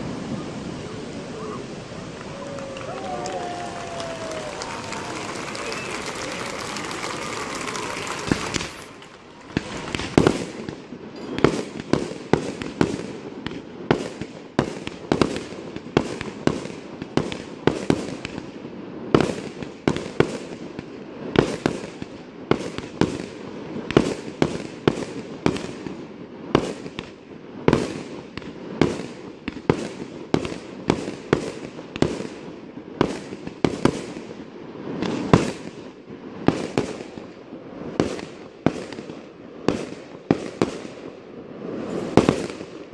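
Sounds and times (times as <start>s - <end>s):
firework shells bursting: 0.0s - 12.4s.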